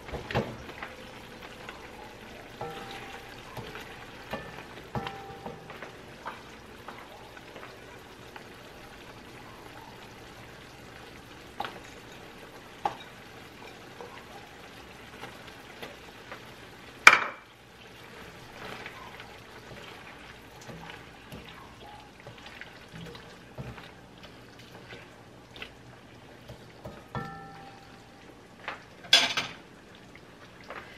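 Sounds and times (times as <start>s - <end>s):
sauce sizzling in a wok: 0.0s - 30.9s
spatula tapping a pan: 2.6s - 7.0s, 20.6s - 21.6s, 26.4s - 28.1s.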